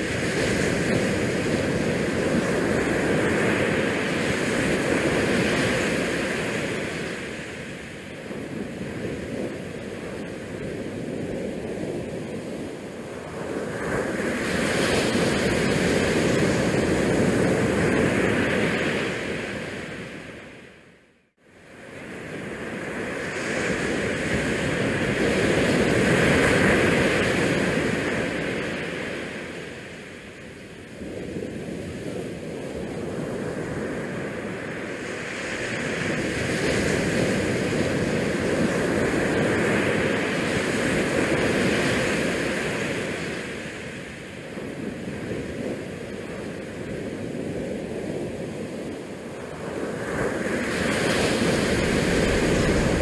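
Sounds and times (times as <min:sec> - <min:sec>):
wind: 0:00.0 - 0:53.0
waves against rocks: 0:49.5 - 0:53.0.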